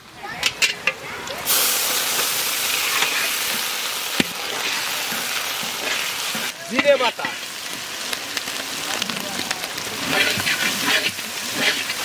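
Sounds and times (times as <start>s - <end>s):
onions sizzling in hot oil: 0.5s - 12.0s
spatula stirring in pan: 2.2s - 7.5s, 9.7s - 12.0s.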